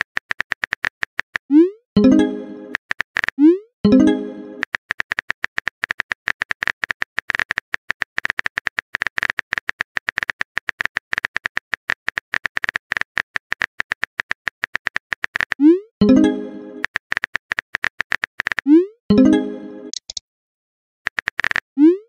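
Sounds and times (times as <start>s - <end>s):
phone keyboard clicking: 4.6s - 15.6s, 19.9s - 20.2s, 21.1s - 21.6s.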